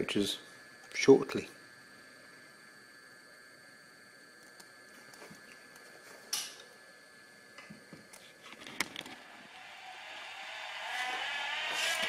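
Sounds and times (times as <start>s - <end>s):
model locomotive whine: 8.5s - 12.0s.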